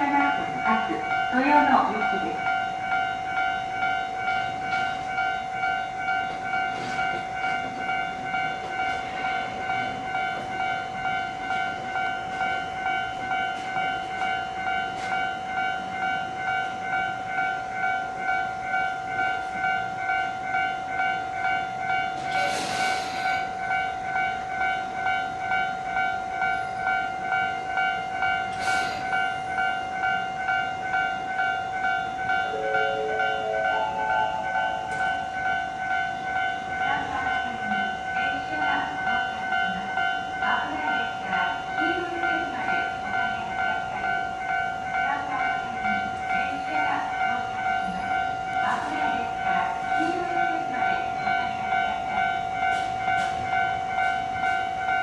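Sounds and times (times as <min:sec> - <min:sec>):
electric train running over tracks: 0:00.0 - 0:55.0
electronic warning tone beeping: 0:32.3 - 0:36.6
lower electronic tones: 0:32.4 - 0:36.2.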